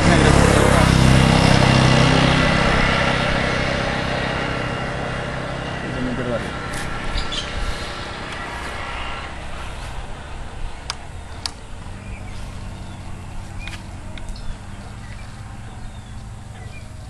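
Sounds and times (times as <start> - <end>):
motorcycle engine idling: 0.0 - 17.0
sharp clicks: 10.8 - 11.6.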